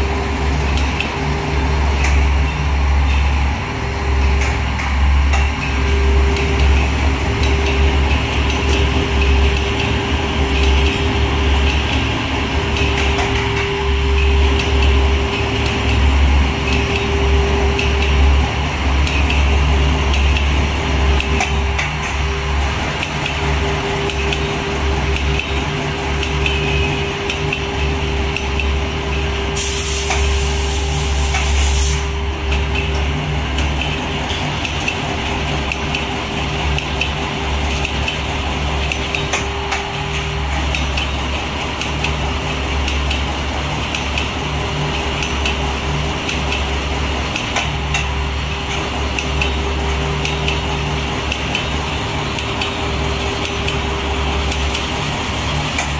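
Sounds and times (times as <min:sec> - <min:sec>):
constant machine whine: 0:00.0 - 0:55.9
machine motor hum: 0:00.0 - 0:55.9
compressed air hiss: 0:29.6 - 0:32.1.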